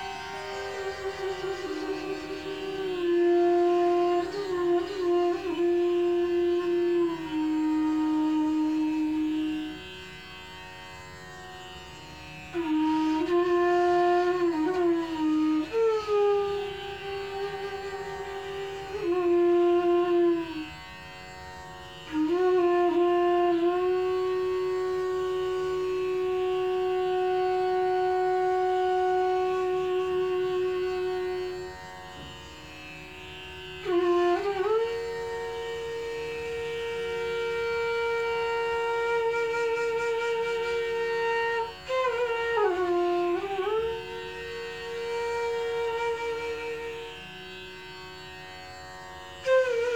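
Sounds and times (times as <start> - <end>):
bamboo flute playing: 0.0 - 10.2, 12.4 - 20.9, 22.0 - 32.4, 33.8 - 48.1, 49.3 - 49.9.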